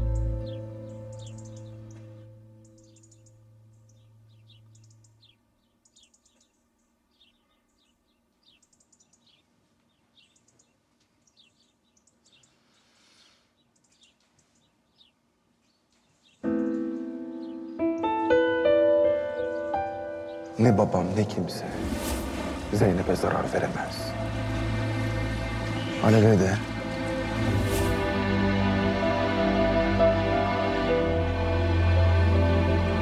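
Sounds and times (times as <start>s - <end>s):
soft piano music: 0.0s - 5.4s, 16.4s - 33.0s
small birds chirping: 0.0s - 18.4s, 22.3s - 27.4s.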